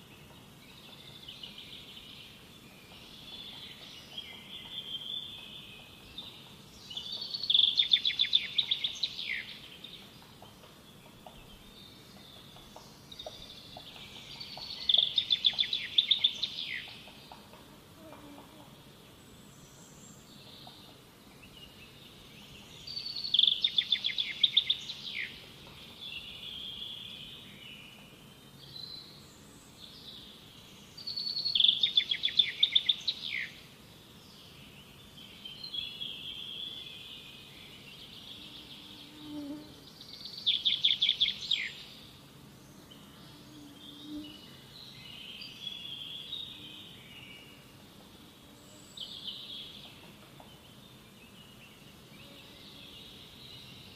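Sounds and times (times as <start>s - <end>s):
soft bird chirps: 0.1s - 17.5s
bird singing rapid notes: 11.0s - 17.2s, 39.4s - 42.0s.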